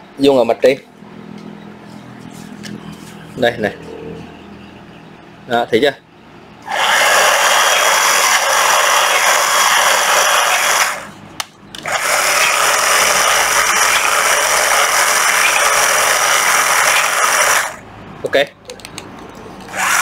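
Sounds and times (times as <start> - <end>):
cordless rod cutter motor running: 6.6 - 11.2, 11.8 - 17.8, 19.7 - 20.0.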